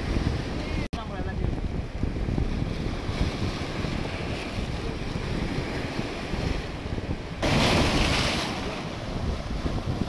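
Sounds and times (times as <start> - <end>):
surf washing around rocks: 0.0 - 10.0
wind buffeting microphone: 0.0 - 10.0
wave splashing against rocks: 1.4 - 10.0.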